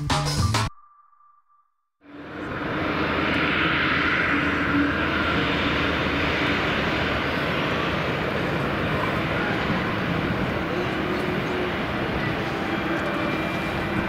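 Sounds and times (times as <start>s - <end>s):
jet engines at takeoff thrust: 2.1s - 14.0s.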